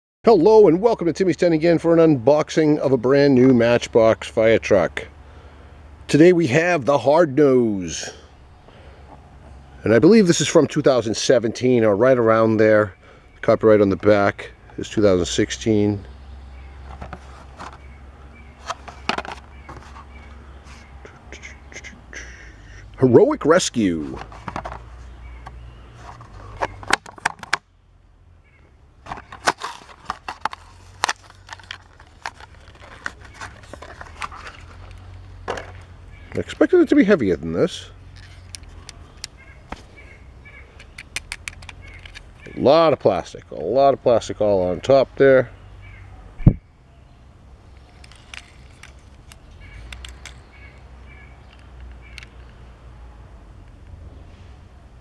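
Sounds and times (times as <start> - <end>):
plastic blister pack crackling: 29.1 - 35.3
toy truck clicking in fingers: 47.8 - 50.4.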